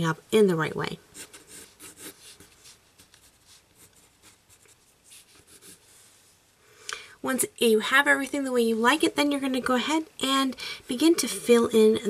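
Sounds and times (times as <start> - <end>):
pencil scratching on paper: 1.1 - 6.2.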